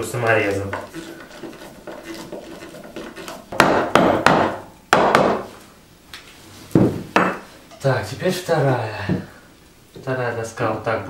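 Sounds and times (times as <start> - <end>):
sharp wooden knocks: 3.0 - 5.4.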